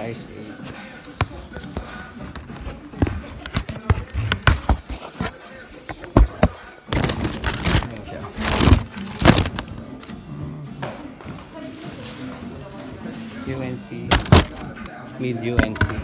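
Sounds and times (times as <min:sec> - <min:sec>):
tissue paper rustling: 0:07.0 - 0:09.7.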